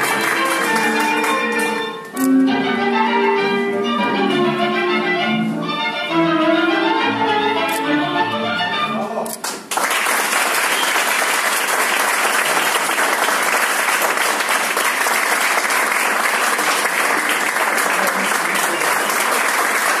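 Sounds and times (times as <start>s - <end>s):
audience applauding: 0.0s - 1.8s, 9.4s - 20.0s.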